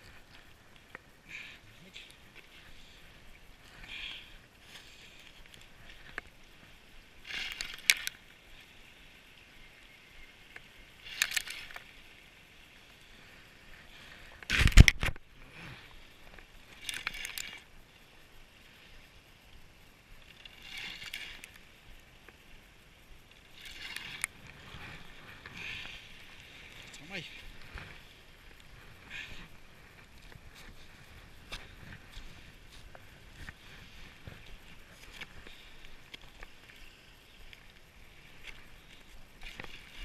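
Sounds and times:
fishing reel gear whirring: 5.2 - 8.6, 10.3 - 13.0, 16.4 - 17.8, 19.0 - 30.2.

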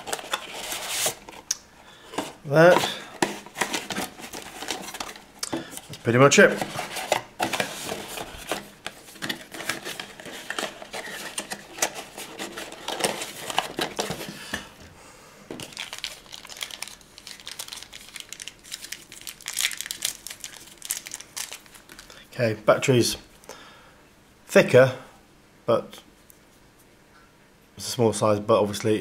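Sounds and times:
cardboard rustling and crinkling: 0.0 - 1.5, 2.1 - 14.6, 15.5 - 22.1.

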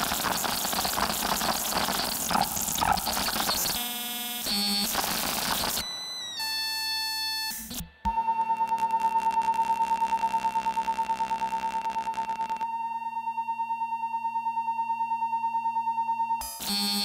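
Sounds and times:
synthesizer tones stepping down: 0.0 - 3.8
synthesizer hissing noise with tones: 0.0 - 4.0
rapidly pulsing high tone: 0.0 - 4.3.

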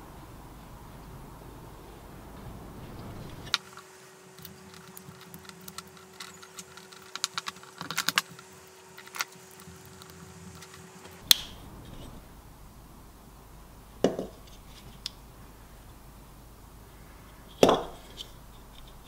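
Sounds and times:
faint steady hum: 0.0 - 19.0
tape crackling clicks: 1.9 - 12.3.

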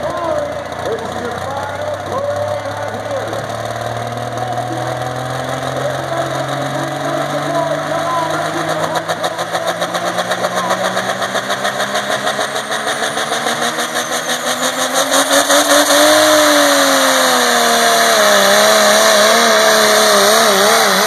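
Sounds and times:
diesel truck engine at full throttle: 0.0 - 21.0.

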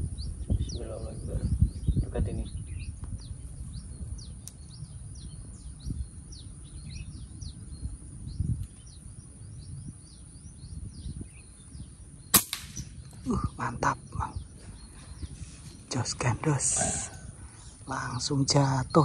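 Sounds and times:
air rifle shot crack: 12.3 - 13.2.

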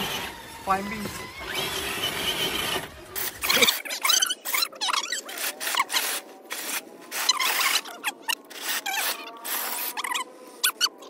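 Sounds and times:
electric motor whining: 0.0 - 3.9.

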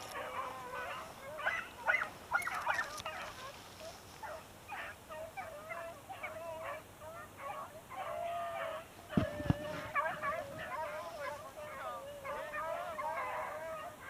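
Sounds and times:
dogs baying and howling: 0.0 - 14.0.

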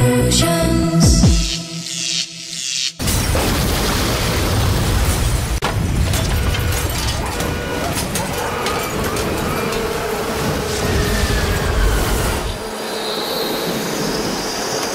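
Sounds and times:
electronic music: 0.0 - 3.0
fire roaring with cracks: 3.0 - 12.7.

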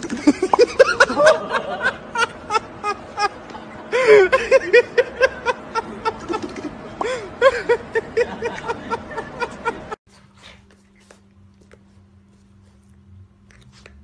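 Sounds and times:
person laughing: 0.0 - 10.0
faint steady hum: 0.0 - 14.0.

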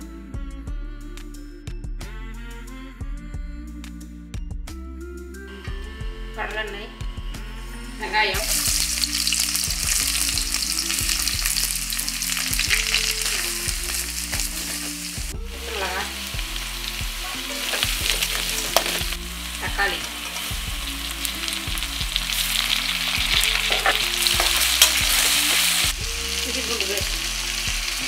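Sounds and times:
onions sizzling in hot oil: 8.4 - 28.0.

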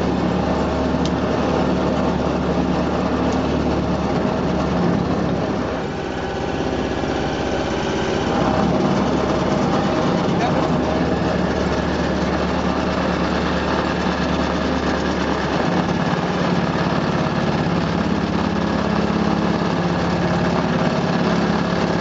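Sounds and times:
boat engine humming: 0.0 - 22.0.

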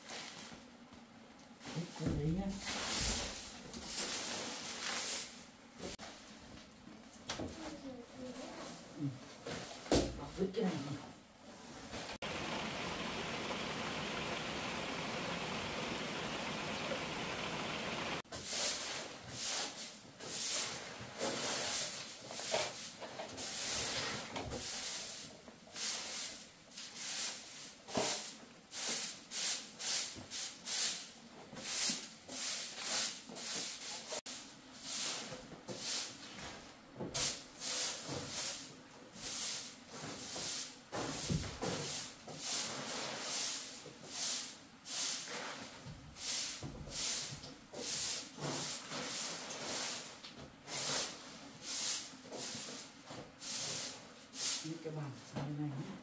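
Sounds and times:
broom sweeping: 0.0 - 0.7, 1.6 - 6.6, 11.4 - 55.2
steady hiss: 12.0 - 24.0.

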